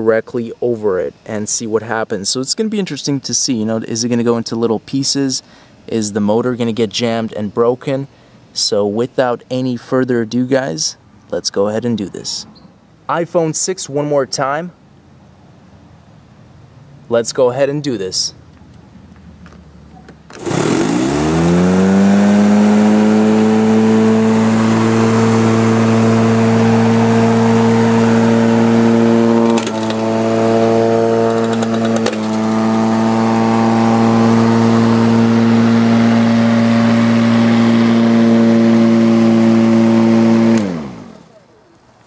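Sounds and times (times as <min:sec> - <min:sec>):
electric lawn mower running: 0:20.3 - 0:41.5
mower blade striking phone: 0:29.3 - 0:32.9.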